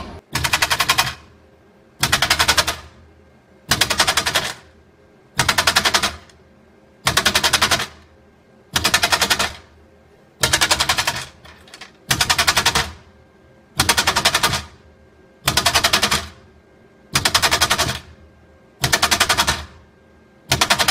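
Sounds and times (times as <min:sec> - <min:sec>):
vibrating tray rattling metal parts: 0:10.4 - 0:12.9.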